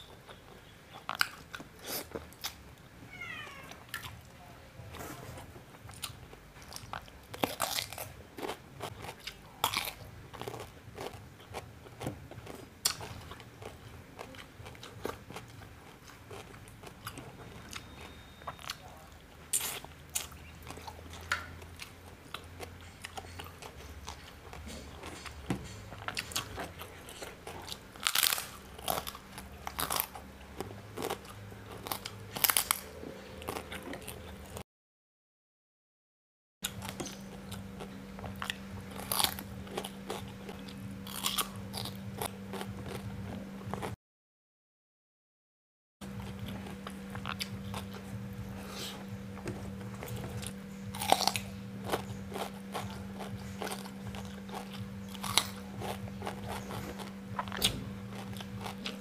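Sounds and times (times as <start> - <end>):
crunchy bites and chewing: 5.8 - 34.6, 36.6 - 43.9, 46.0 - 59.0.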